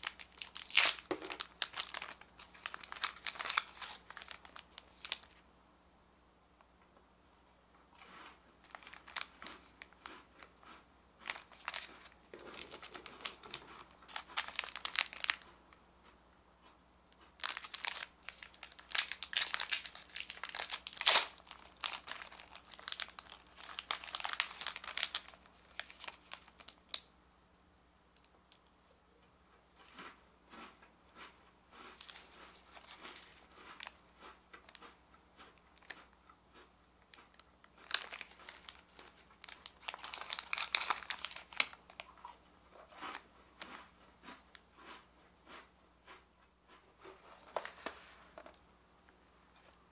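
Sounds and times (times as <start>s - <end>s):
plastic wrappers crinkling and tearing: 0.0s - 5.4s, 8.6s - 10.2s, 11.2s - 15.5s, 17.4s - 27.1s, 31.9s - 34.0s, 37.1s - 43.2s.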